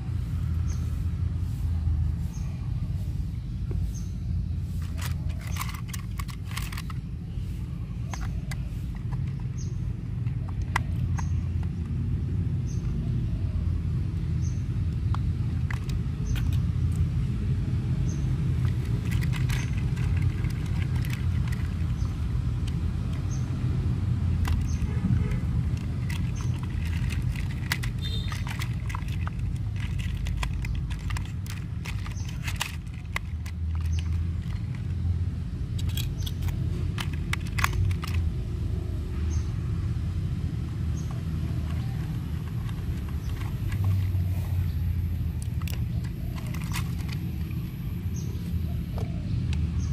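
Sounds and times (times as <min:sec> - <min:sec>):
small plastic clicks and taps: 0:08.0 - 0:12.0, 0:14.1 - 0:17.1, 0:18.6 - 0:23.5, 0:35.7 - 0:38.3.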